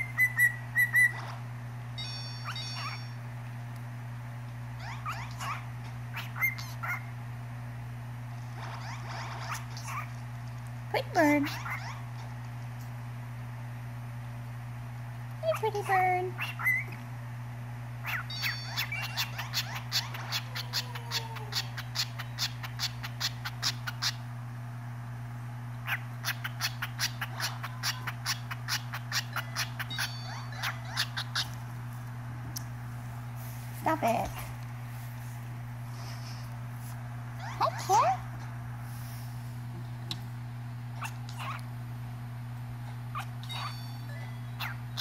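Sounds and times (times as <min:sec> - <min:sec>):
cockatiel chirping: 0:00.0 - 0:01.3, 0:02.0 - 0:03.2, 0:04.8 - 0:07.0, 0:16.4 - 0:16.9, 0:18.0 - 0:20.9, 0:21.5 - 0:24.2, 0:25.8 - 0:31.6, 0:43.1 - 0:44.0, 0:44.6 - 0:45.0
steady low hum: 0:00.0 - 0:45.0.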